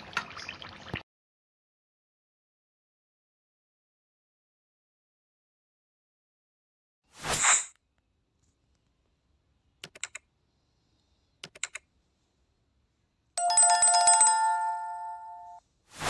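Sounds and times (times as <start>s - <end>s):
mouse clicks: 11.4s - 11.9s
electronic notification bell: 13.4s - 15.6s.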